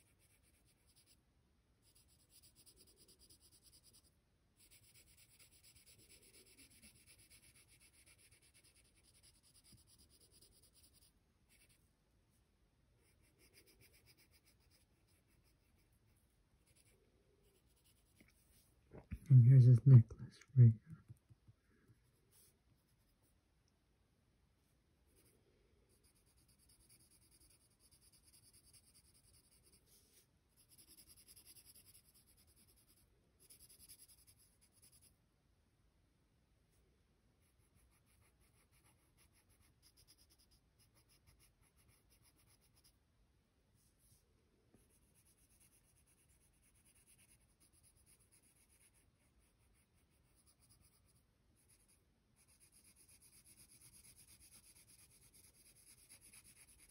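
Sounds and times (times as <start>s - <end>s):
pencil scratching on paper: 0.0s - 1.2s, 1.8s - 11.9s, 13.0s - 18.6s, 25.1s - 25.3s, 25.9s - 35.1s, 37.4s - 43.0s, 43.8s - 56.9s.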